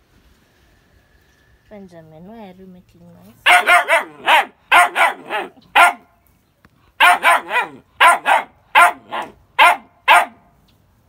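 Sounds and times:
dog barking: 0:03.4 - 0:06.1, 0:07.0 - 0:10.4.

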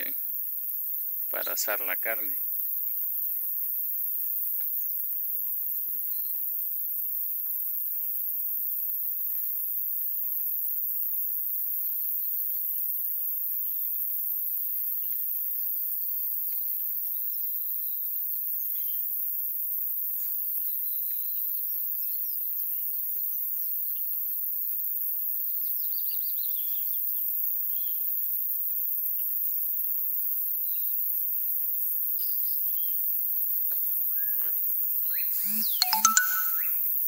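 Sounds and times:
high-pitched hiss: 0:35.1 - 0:36.8.

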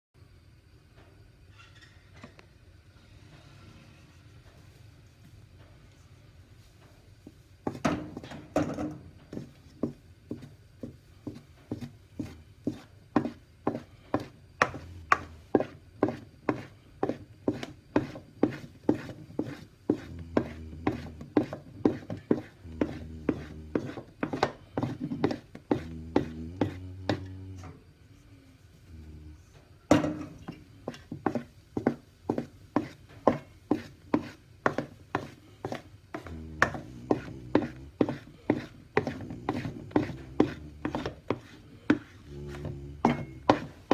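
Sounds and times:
wooden spatula scraping metal bowl: 0:11.7 - 0:27.3, 0:30.5 - 0:43.9.

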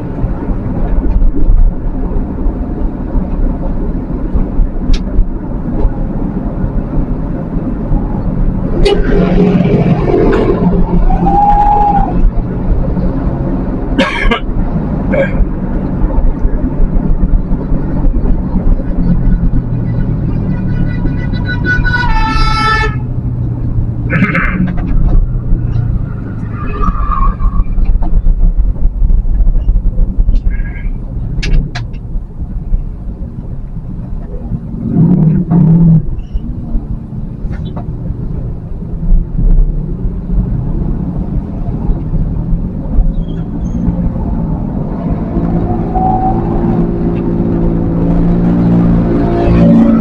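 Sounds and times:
vehicle engine and tyres rumbling: 0:00.0 - 0:50.0
car horns tooting: 0:20.0 - 0:23.1.

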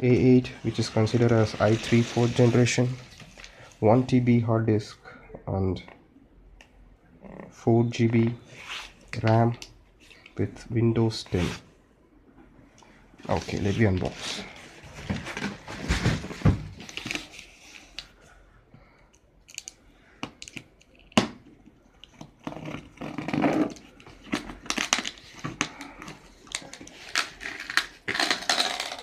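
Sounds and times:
cardboard and bubble wrap rustling: 0:00.6 - 0:03.5, 0:13.3 - 0:18.0
tape tearing: 0:26.5 - 0:29.0.

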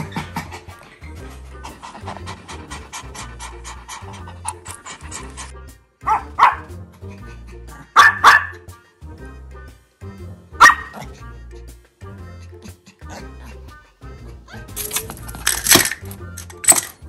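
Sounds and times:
background music: 0:00.0 - 0:17.0
small dog barking sharply: 0:06.0 - 0:06.7, 0:08.0 - 0:08.6, 0:10.6 - 0:11.0.

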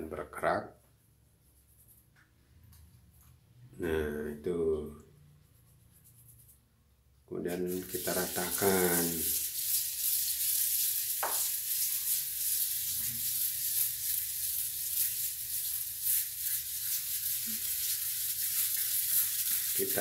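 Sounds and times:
scrub brush on wet tiles: 0:07.5 - 0:20.0.

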